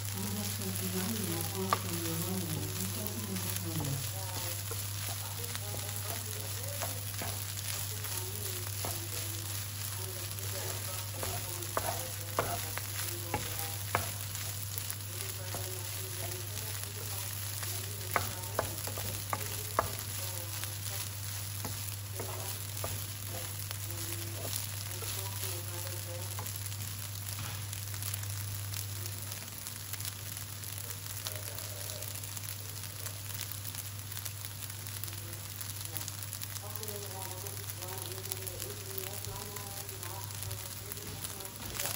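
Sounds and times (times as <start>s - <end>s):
low steady hum: 0.0s - 30.8s
rice sizzling in pan: 0.0s - 41.9s.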